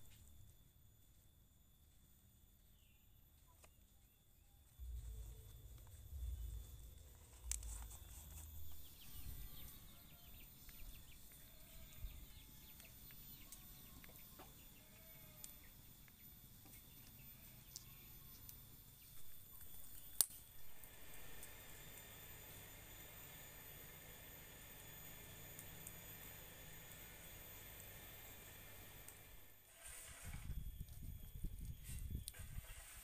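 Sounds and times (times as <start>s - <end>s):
insects calling: 0.0s - 33.0s
low rumbles: 4.8s - 9.5s.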